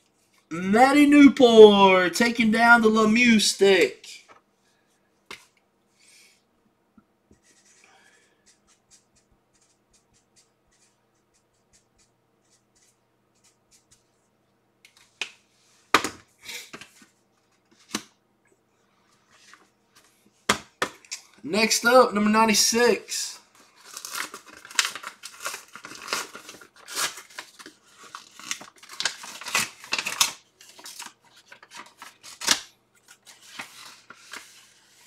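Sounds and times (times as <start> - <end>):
envelope paper rustling: 23.5 - 35.0.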